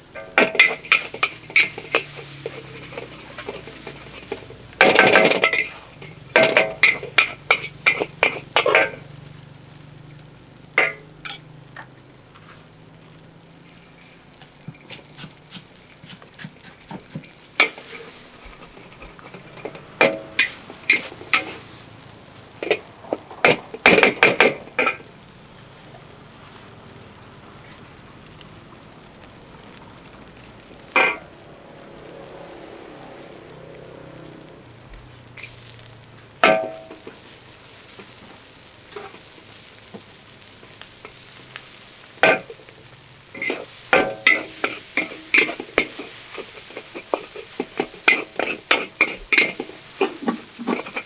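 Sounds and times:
noodles sizzling in a wok: 0:00.0 - 0:51.0
metal spatula clanging on a wok: 0:00.1 - 0:09.1, 0:10.8 - 0:11.5, 0:17.2 - 0:21.6, 0:36.4 - 0:37.1, 0:43.4 - 0:51.0.

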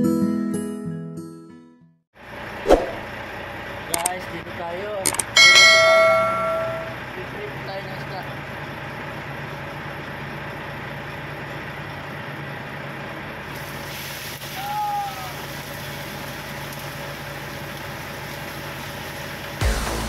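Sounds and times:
low engine hum: 0:02.3 - 0:13.9
oil sizzling in a frying pan: 0:13.5 - 0:19.6.

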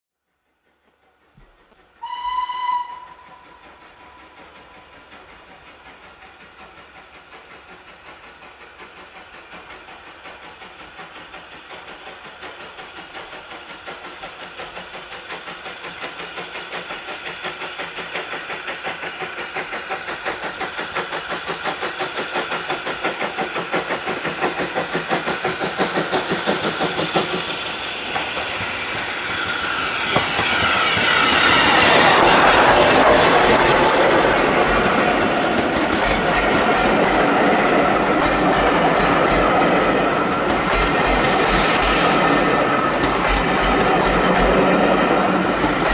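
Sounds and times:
steam locomotive exhaust beats: 0:00.3 - 0:45.9
steam locomotive whistle: 0:02.0 - 0:04.3, 0:41.1 - 0:45.5.

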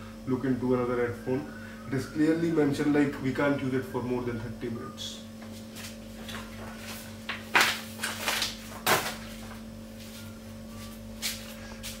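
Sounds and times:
steady low hum: 0:00.0 - 0:12.0
paper rustling and crackling: 0:05.8 - 0:09.6.

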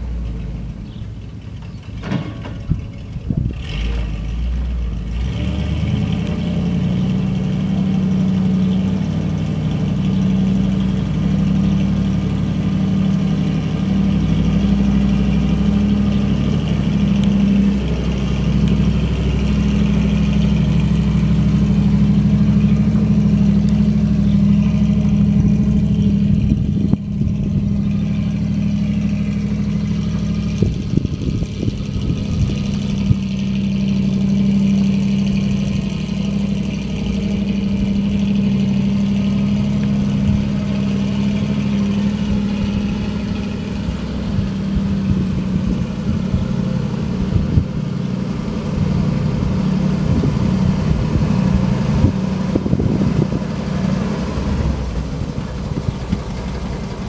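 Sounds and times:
truck engine running: 0:00.0 - 0:57.0.

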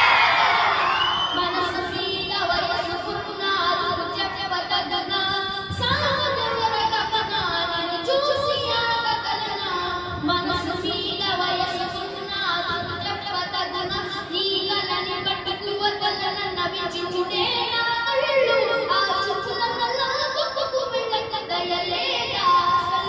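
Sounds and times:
boy singing into microphone: 0:01.2 - 0:23.0.

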